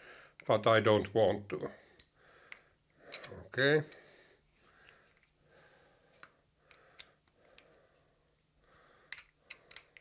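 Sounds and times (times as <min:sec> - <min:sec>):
allen key clicking on screws: 0:09.1 - 0:10.0.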